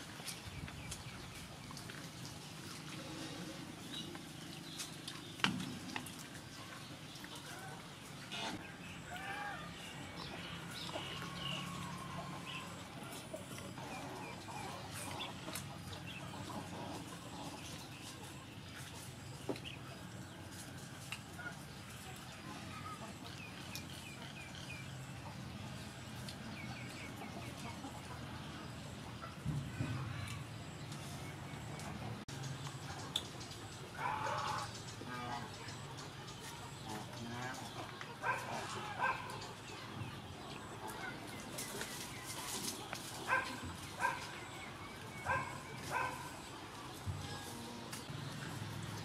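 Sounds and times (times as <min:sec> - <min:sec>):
dog barking: 0:38.2 - 0:39.4, 0:43.3 - 0:44.3, 0:45.2 - 0:46.4.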